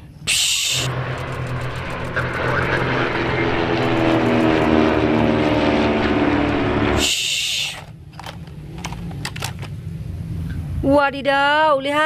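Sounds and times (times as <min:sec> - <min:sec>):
propeller airplanes droning: 0:00.0 - 0:11.2.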